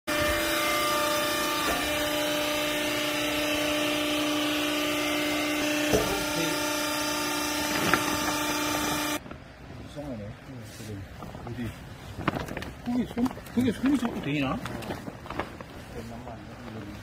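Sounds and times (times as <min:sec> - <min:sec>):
hydraulic motor humming: 0:00.1 - 0:09.2.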